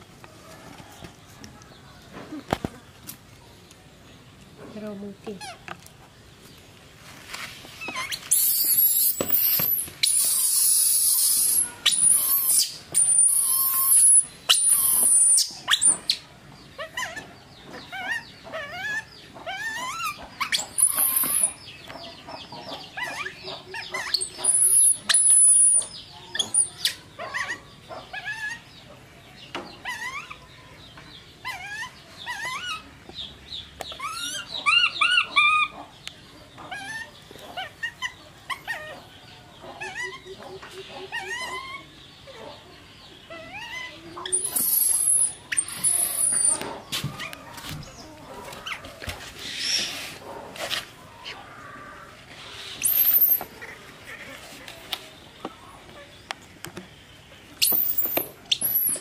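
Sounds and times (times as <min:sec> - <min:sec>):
baby monkey screaming shrilly: 0:07.8 - 0:16.2, 0:18.0 - 0:21.6, 0:43.4 - 0:46.6, 0:52.8 - 0:54.2, 0:57.6 - 0:59.0
short squeaky chirps: 0:07.8 - 0:16.2, 0:44.3 - 0:46.6, 0:52.8 - 0:53.5, 0:57.6 - 0:59.0.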